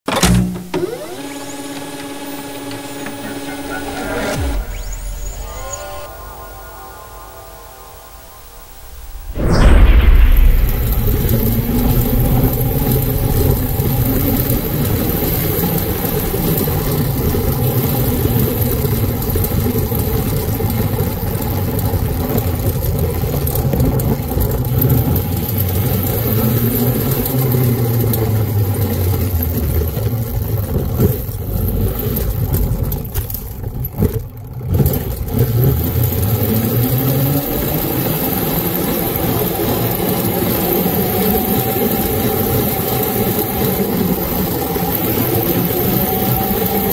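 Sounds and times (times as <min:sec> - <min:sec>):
electric motorbike drivetrain whine: 0:00.1 - 0:06.1, 0:11.9 - 0:46.9
chain and tyre noise: 0:11.6 - 0:46.9.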